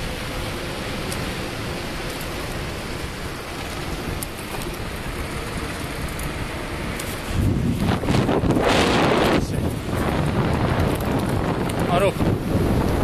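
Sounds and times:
bicycle tyres on asphalt: 0:00.0 - 0:13.0
faint ticks: 0:01.0 - 0:01.3
wind rushing: 0:05.1 - 0:13.0.

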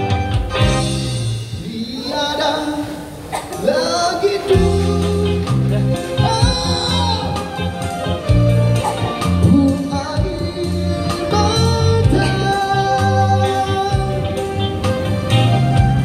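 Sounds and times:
live band with electric guitars: 0:00.0 - 0:16.0
man and woman singing duet: 0:01.6 - 0:07.5, 0:09.4 - 0:14.5.

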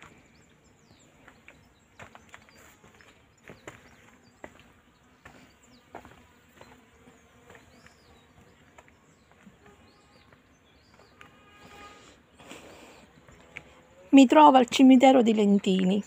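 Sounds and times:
footsteps on stone path: 0:00.0 - 0:16.0
flying insect buzzing: 0:04.0 - 0:14.2.

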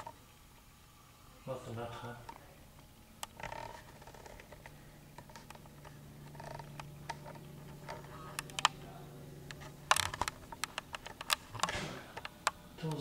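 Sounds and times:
low steady hum: 0:00.0 - 0:13.0
small clicks and taps: 0:02.2 - 0:08.8, 0:09.5 - 0:13.0.

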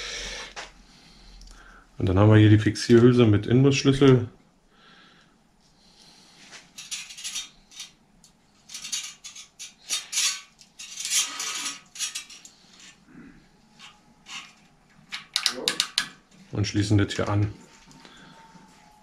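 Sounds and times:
small metal parts clinking: 0:06.8 - 0:13.0.

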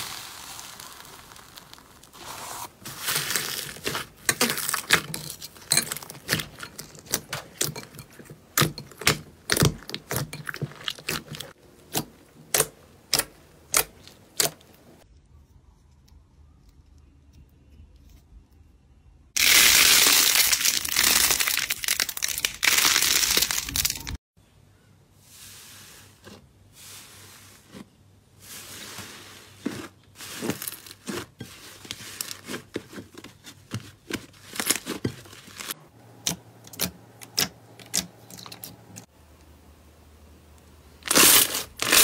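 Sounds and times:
dense crackle of clay balls: 0:00.0 - 0:07.8, 0:19.4 - 0:24.2
squishing slime: 0:00.0 - 0:15.0, 0:25.3 - 0:39.1.

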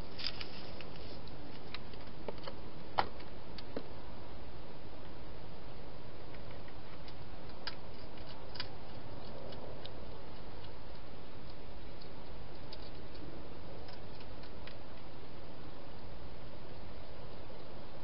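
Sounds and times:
steady background hiss: 0:00.0 - 0:18.0
hedgehog eating clicks and crunches: 0:00.2 - 0:02.6, 0:06.2 - 0:15.2.

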